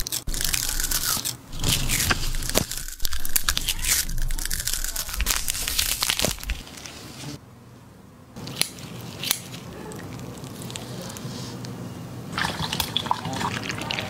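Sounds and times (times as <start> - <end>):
crisp crackling and crunching: 0.0 - 7.4, 8.9 - 11.3.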